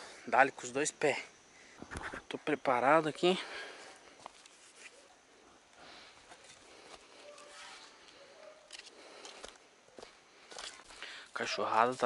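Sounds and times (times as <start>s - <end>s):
soft rustles: 3.8s - 5.2s
distant dogs barking: 7.1s - 8.8s.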